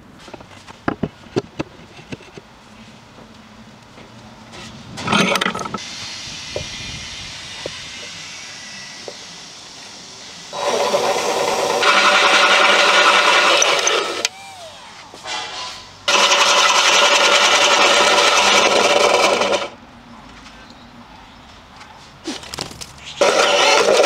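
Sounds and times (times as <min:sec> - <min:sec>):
drill cutting with hole saw: 0:10.5 - 0:14.3, 0:16.1 - 0:19.7, 0:23.2 - 0:24.0.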